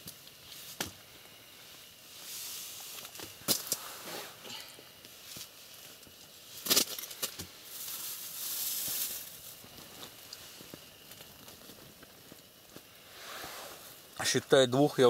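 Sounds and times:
plastic bag rustling: 5.2 - 12.6.

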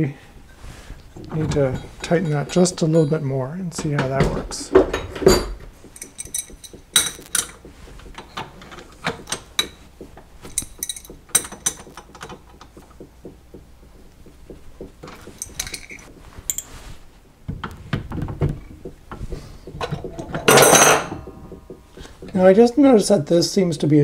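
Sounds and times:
handling knocks: 0.7 - 23.6
hand tools clinking on steel: 1.3 - 9.8, 10.4 - 12.7, 15.0 - 16.8, 19.8 - 21.6.

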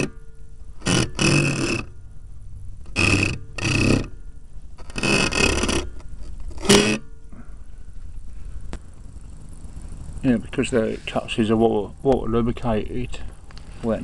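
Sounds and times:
dry bearing groaning: 0.8 - 2.0, 2.8 - 7.8.

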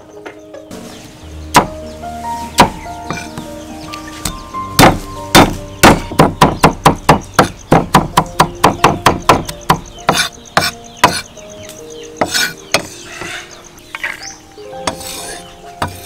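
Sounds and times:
cleaver chopping on wooden block: 4.2 - 11.3
blade scraping across board: 14.9 - 16.0.

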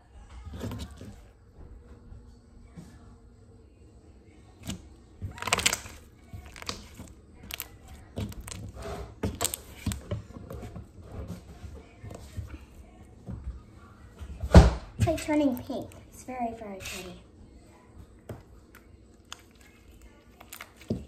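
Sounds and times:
slime squeezed by hand: 5.3 - 6.9.

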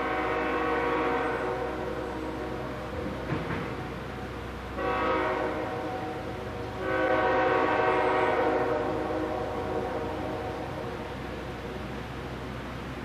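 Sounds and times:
locomotive air horn: 0.0 - 3.1, 4.7 - 11.2
locomotive low rumble: 0.0 - 13.0.

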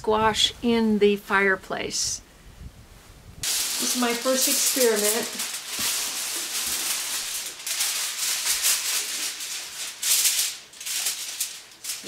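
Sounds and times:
aluminium foil crinkling: 3.4 - 12.0.

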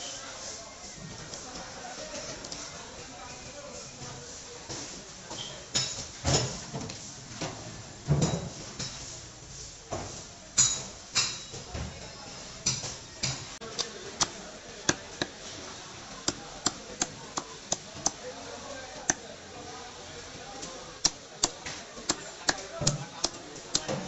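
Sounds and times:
knife chopping on wooden block: 21.0 - 24.0.

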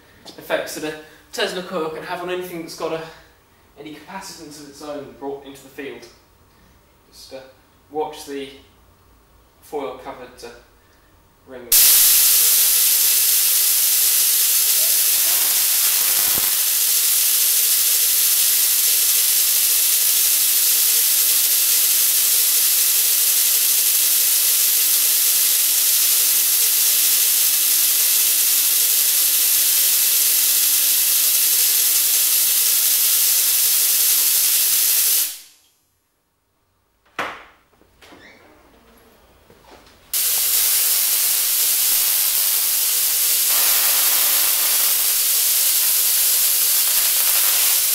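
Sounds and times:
steady hum: 11.6 - 19.3, 38.5 - 47.9
tesla coil spark gap hissing: 11.7 - 35.8, 40.1 - 47.9.

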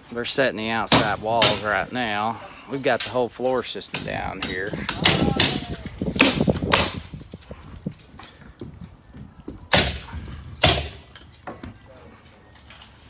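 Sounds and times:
nails hammered into wood: 0.9 - 1.6.

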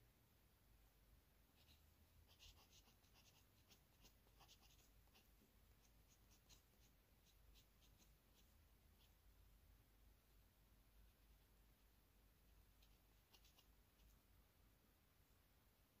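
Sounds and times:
pen nib scratching on paper: 1.6 - 9.2, 12.8 - 14.1.

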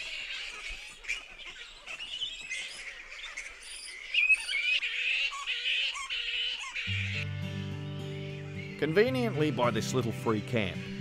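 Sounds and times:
fruit bats screeching and chattering: 0.0 - 7.2.

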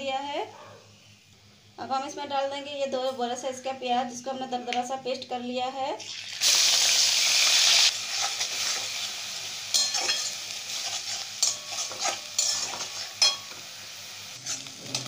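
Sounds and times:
onions sizzling in hot oil: 6.0 - 15.0
spatula scraping pan: 9.7 - 13.6, 14.4 - 15.0.

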